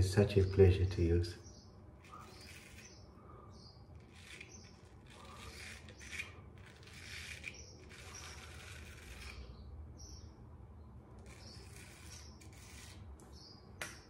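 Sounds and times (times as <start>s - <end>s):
straight razor scraping stubble: 2.0s - 3.1s, 3.9s - 9.7s, 11.2s - 13.4s.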